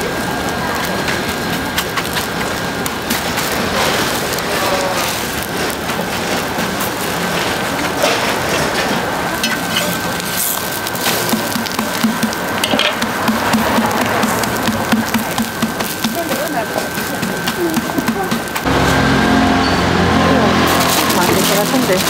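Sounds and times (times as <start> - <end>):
pancakes sizzling in oil: 0.0 - 19.2.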